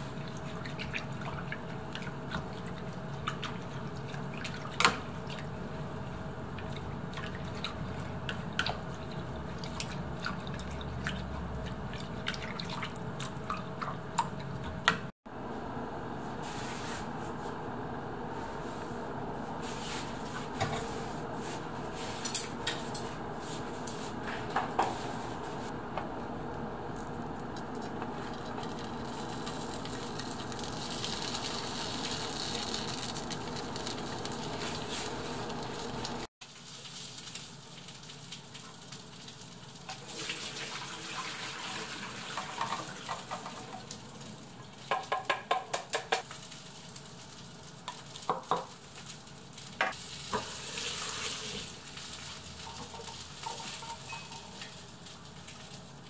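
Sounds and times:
oil sizzling in skillet: 0:27.8 - 0:45.2, 0:46.2 - 0:56.0.

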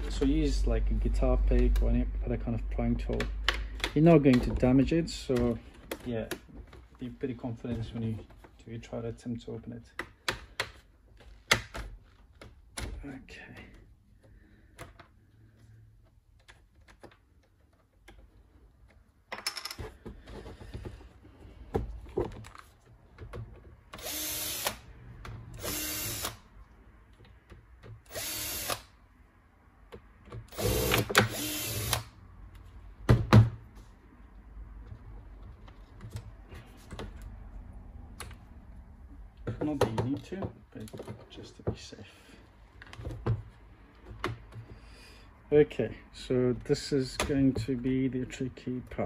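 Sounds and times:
cordless drill spinning: 0:24.0 - 0:24.8, 0:25.6 - 0:26.4, 0:28.1 - 0:28.8, 0:30.5 - 0:32.0.

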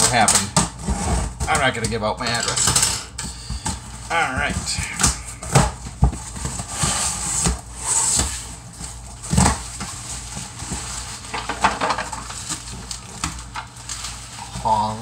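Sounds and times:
cardboard flaps scraping and rustling: 0:04.1 - 0:15.0.

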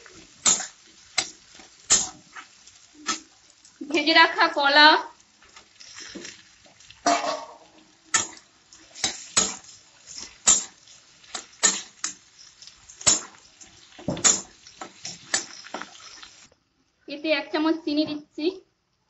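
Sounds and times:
steel spatula clanking on wok: 0:05.7 - 0:16.4.

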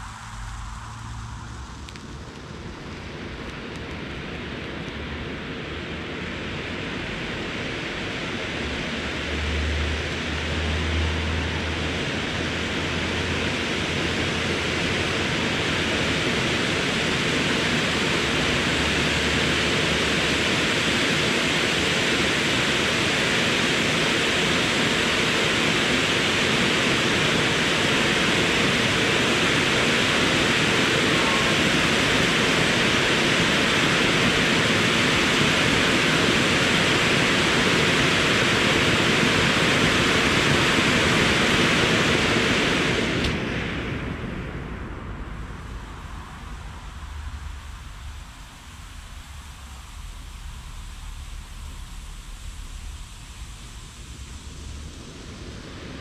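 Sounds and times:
firework fountains hissing: 0:00.0 - 0:05.2, 0:10.6 - 0:43.4, 0:45.2 - 0:56.0.

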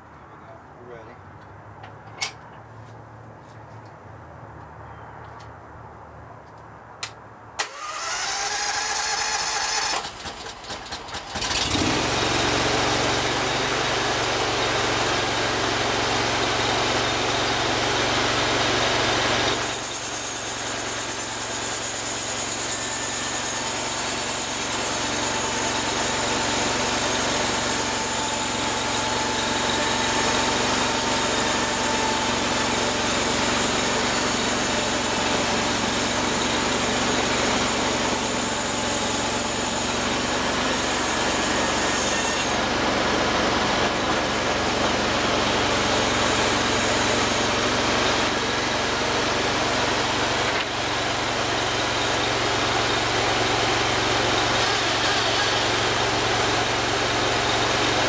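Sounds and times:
engine running under load: 0:07.6 - 0:58.0
band blade sawing wood: 0:19.4 - 0:58.0.

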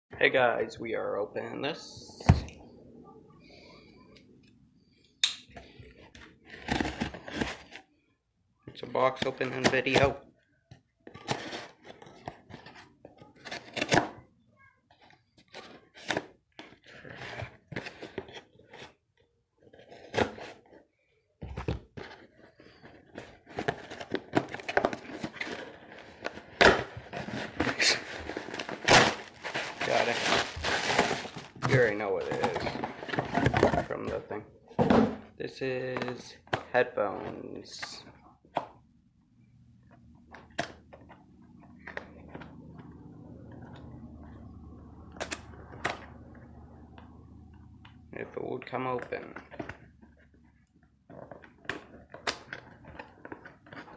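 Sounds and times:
packaging scratching rustle: 0:22.2 - 0:33.6
cardboard box tearing and scraping: 0:26.5 - 0:31.6.

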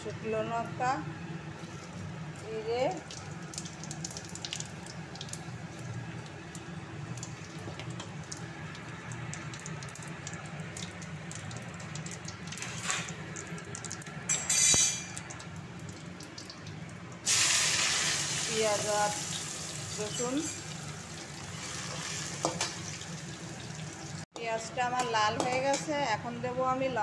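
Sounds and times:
loud sizzle of onion in oil: 0:03.1 - 0:24.3
spices sizzling in hot oil: 0:14.2 - 0:16.5, 0:17.2 - 0:24.3.

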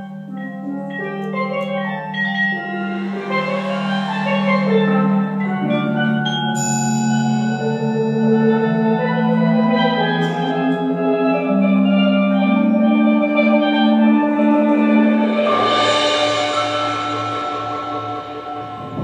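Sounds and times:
marimba and vibraphone: 0:00.0 - 0:19.0
steel pan notes: 0:00.0 - 0:19.0
shimmering swell: 0:02.2 - 0:09.0, 0:15.0 - 0:19.0.

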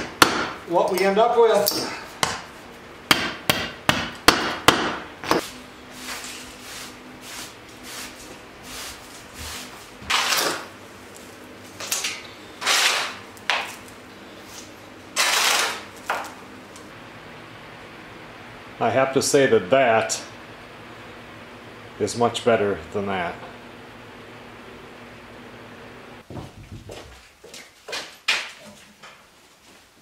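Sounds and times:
hammer striking plywood: 0:00.0 - 0:00.6, 0:03.1 - 0:05.4.

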